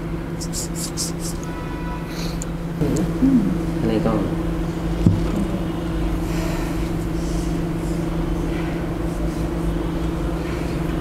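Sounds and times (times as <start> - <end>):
low room hum and rumble: 0.0 - 11.0
droning tones: 2.7 - 11.0.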